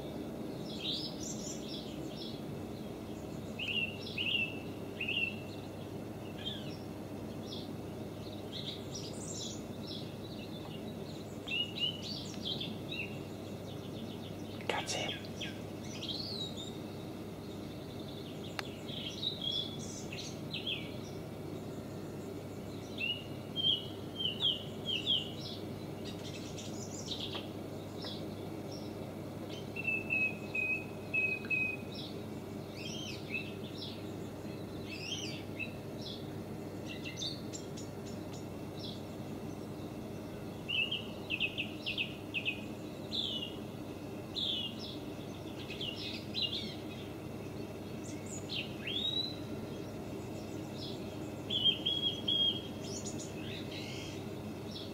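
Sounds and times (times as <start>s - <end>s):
steady low hum: 0.0s - 54.9s
birds chirping and calling: 3.1s - 39.7s, 44.2s - 54.9s
bird trill: 29.5s - 32.1s, 48.0s - 54.2s.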